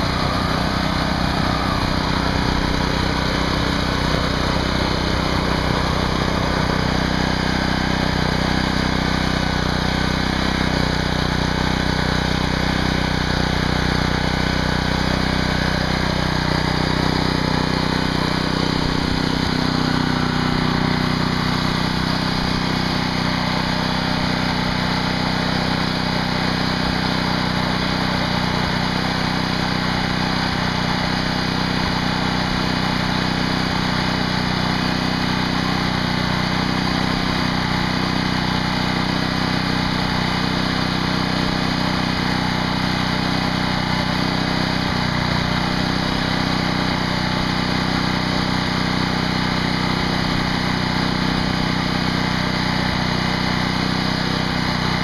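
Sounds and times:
small engine running steadily: 0.0s - 55.0s.

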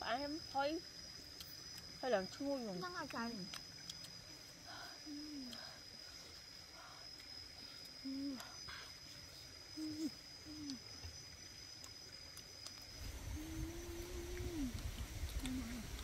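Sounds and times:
high-pitched insect whine: 0.0s - 16.0s
woman humming mmm: 4.8s - 5.8s, 8.0s - 8.9s, 9.8s - 10.9s, 13.2s - 16.0s.

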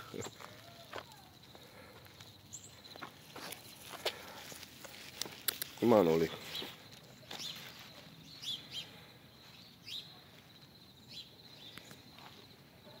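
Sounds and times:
bird chirping: 6.3s - 12.5s.

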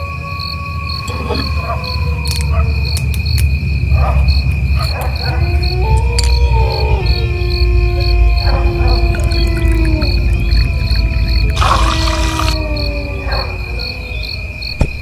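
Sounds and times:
crickets chirping: 0.0s - 15.0s
eerie sustained tones: 5.4s - 14.7s.

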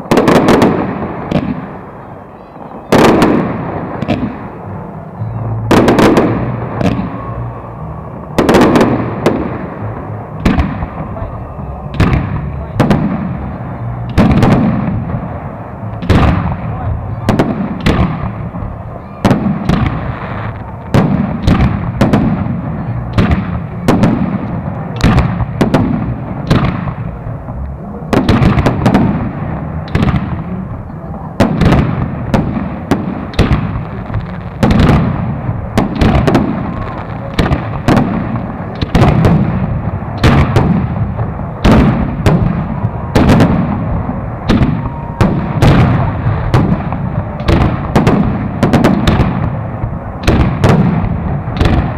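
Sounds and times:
firework bangs with echo: 0.0s - 51.9s.

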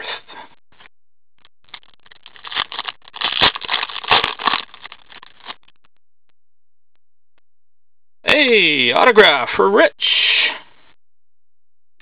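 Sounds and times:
trading cards rustling and scraping: 1.7s - 5.6s.

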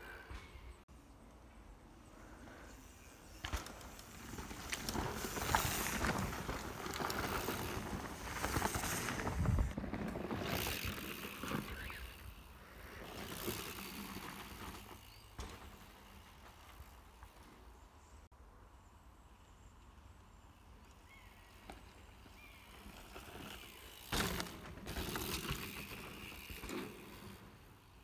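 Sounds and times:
bike tyres rolling on dirt: 0.9s - 18.3s, 19.3s - 28.0s
bike rattle: 3.4s - 17.5s, 22.8s - 27.8s.

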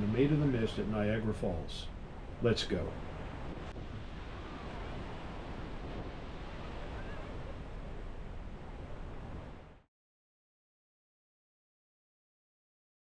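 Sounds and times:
waterfall roaring: 6.4s - 8.0s.

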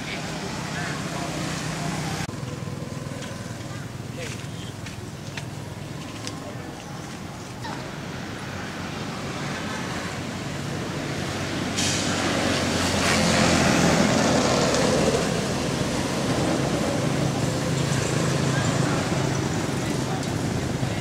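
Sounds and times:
passing road traffic hum: 0.0s - 21.0s
broad rushing hiss: 11.6s - 13.4s.

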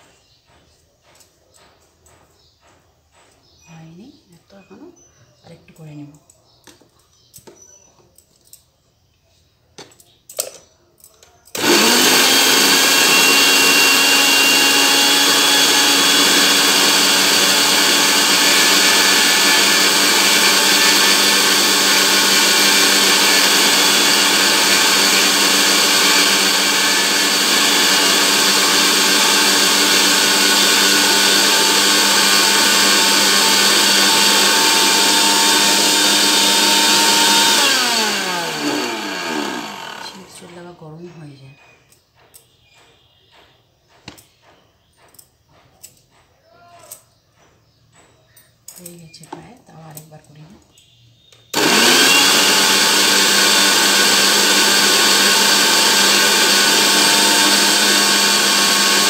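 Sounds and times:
mixer grinder grinding seeds: 11.5s - 40.7s, 51.6s - 59.0s.

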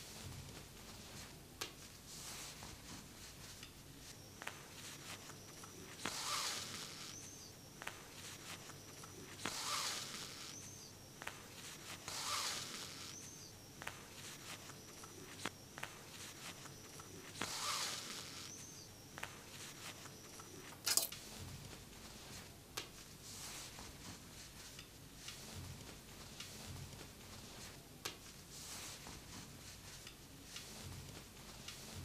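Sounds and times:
taps and rustles of fabric: 0.1s - 6.1s, 7.8s - 9.2s, 11.2s - 12.0s, 13.8s - 17.5s, 19.2s - 20.2s, 20.8s - 32.0s
thread pulled through denim: 20.8s - 21.1s.

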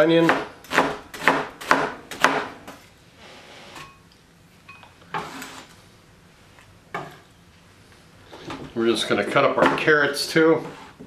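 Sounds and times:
knife chopping onion: 0.0s - 2.7s
knife scraping across cutting board: 5.1s - 5.8s, 10.1s - 11.0s.

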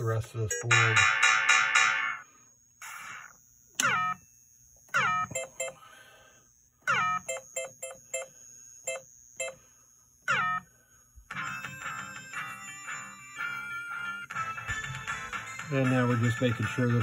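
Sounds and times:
falling electronic tones: 0.0s - 4.3s, 4.9s - 5.8s, 6.8s - 10.7s.

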